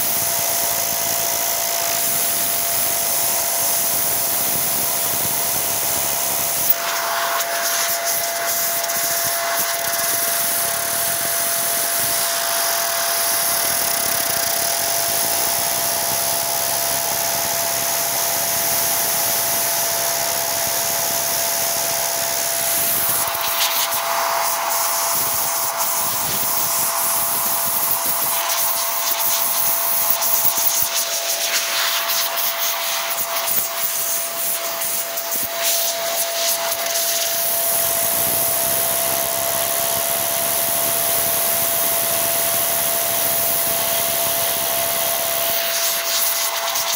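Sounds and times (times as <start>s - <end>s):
electric air blower whining: 0.0s - 46.9s.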